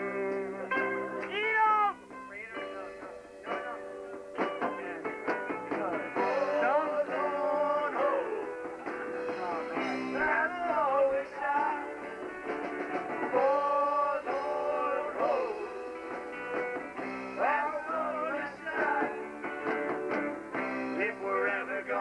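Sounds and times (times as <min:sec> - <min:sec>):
instrumental backing: 0:00.0 - 0:22.0
man and woman singing: 0:05.7 - 0:12.1, 0:13.2 - 0:15.9, 0:17.3 - 0:19.4, 0:21.0 - 0:22.0.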